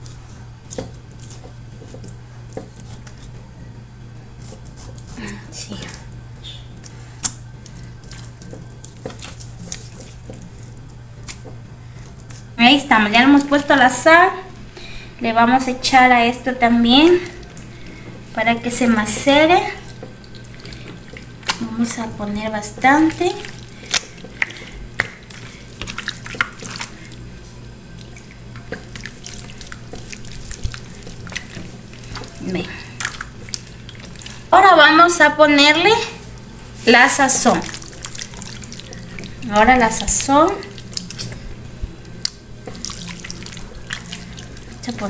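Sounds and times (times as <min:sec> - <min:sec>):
wet squelching of raw meat: 0:05.9 - 0:12.5, 0:19.6 - 0:21.7, 0:22.7 - 0:34.5, 0:36.9 - 0:45.0.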